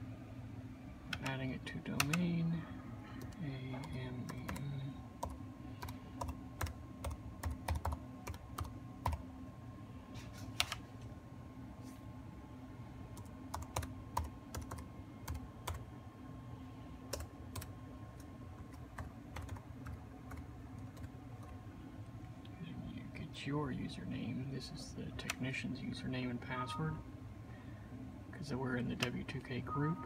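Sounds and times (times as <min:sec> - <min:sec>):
laptop keyboard typing: 0:01.1 - 0:02.2, 0:03.2 - 0:09.2, 0:13.2 - 0:15.9, 0:17.1 - 0:21.6.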